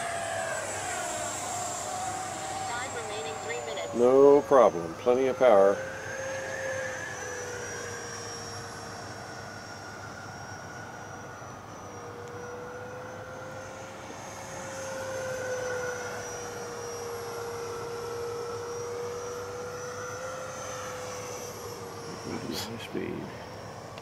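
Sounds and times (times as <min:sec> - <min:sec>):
model jet fan whining: 0:00.0 - 0:24.0.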